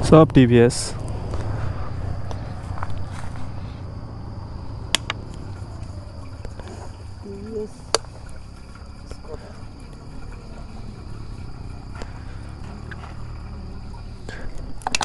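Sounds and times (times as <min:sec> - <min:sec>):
crickets trilling: 0:00.0 - 0:15.0
low background rumble: 0:00.0 - 0:15.0
sharp clicks: 0:04.9 - 0:05.3.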